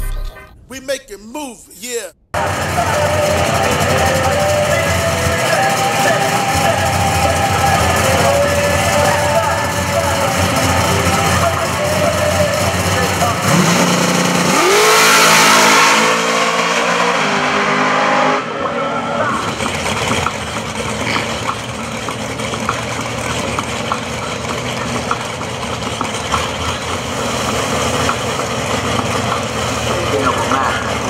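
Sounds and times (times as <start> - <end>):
crowd chatter: 1.8 - 13.5
engine idling: 2.4 - 14.4, 19.2 - 31.0
car engine revving through gears: 2.4 - 31.0.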